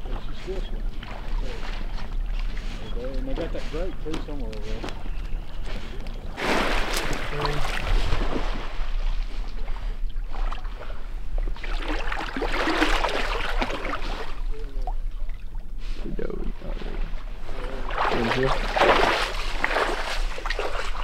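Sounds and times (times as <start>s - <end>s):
dog splashing in water: 11.6s - 14.4s, 17.9s - 21.0s.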